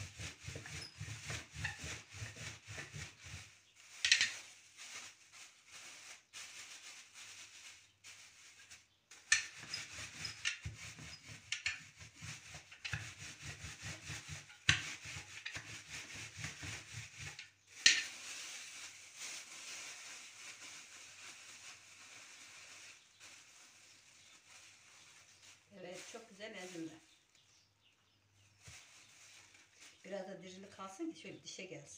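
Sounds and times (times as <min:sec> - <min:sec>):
rolling pin crushing walnuts: 0:00.0 - 0:03.4
plastic bag rustling: 0:00.0 - 0:09.9, 0:15.8 - 0:27.4, 0:28.3 - 0:30.9
plastic bag crinkling: 0:03.1 - 0:09.2, 0:17.6 - 0:27.4, 0:28.3 - 0:30.7.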